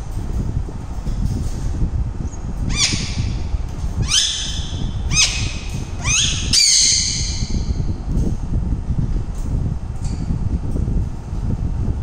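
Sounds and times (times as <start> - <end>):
parakeet squawking: 2.7 - 3.3, 4.0 - 7.6.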